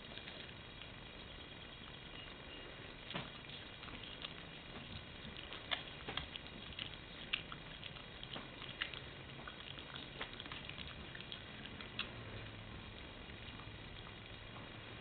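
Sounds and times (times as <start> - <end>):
dog chewing raw fish: 3.0 - 15.0.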